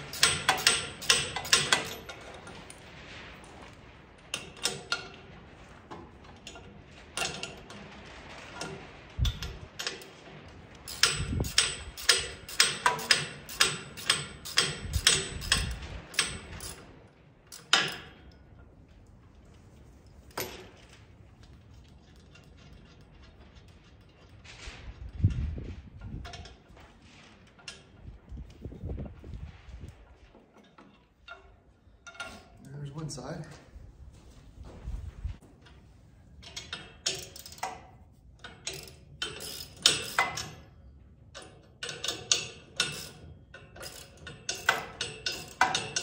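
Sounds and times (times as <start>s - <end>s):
ratchet wrench clicking: 0.1s - 2.0s, 10.9s - 16.8s, 38.7s - 40.5s, 42.0s - 43.2s.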